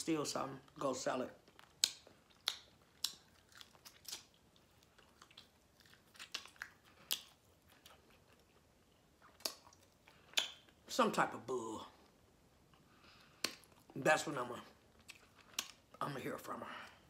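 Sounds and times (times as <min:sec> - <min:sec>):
chewing and mouth smacks: 0:00.6 - 0:10.8, 0:12.0 - 0:14.0, 0:14.7 - 0:16.0.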